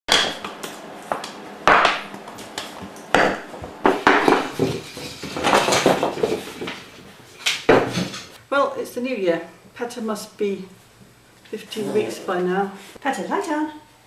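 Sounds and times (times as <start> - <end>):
hard objects knocking and clinking: 0.1 - 8.4.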